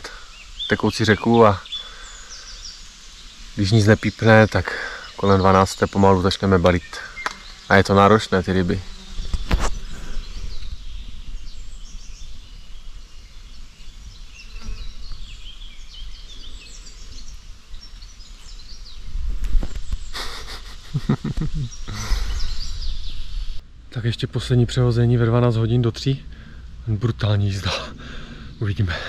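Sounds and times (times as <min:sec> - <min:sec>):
small birds singing and chirping: 0:00.0 - 0:29.0
wind rumble on microphone: 0:08.7 - 0:28.6
man's voice murmuring: 0:20.2 - 0:22.6, 0:26.9 - 0:29.0.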